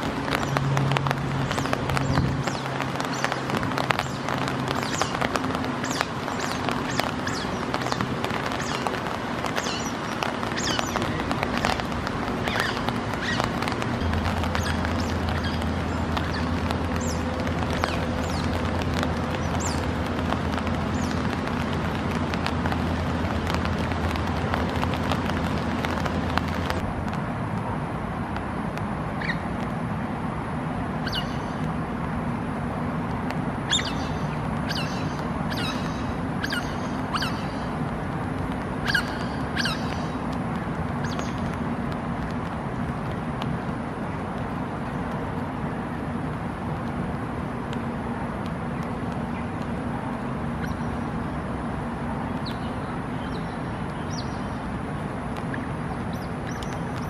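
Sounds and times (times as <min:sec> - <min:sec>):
otters chirping: 0:00.0 - 0:21.6, 0:33.7 - 0:37.8, 0:38.8 - 0:40.2
rain on water: 0:00.0 - 0:57.0.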